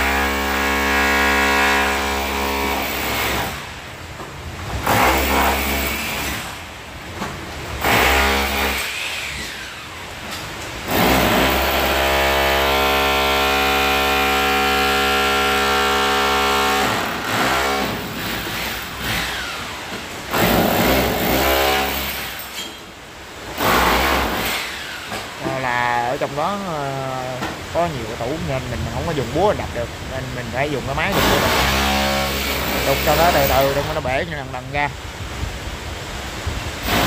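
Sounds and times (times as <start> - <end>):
electric chipping hammer on brick: 4.8 - 6.4, 7.8 - 9.4, 10.9 - 19.7, 20.3 - 22.4, 23.6 - 25.3, 31.1 - 34.0.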